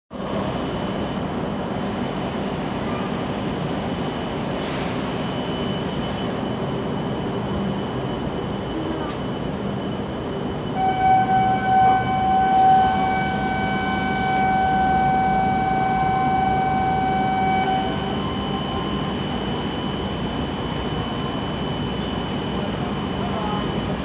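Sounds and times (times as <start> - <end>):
station and train hum: 0.1 - 24.0
steady electronic tone: 9.7 - 24.0.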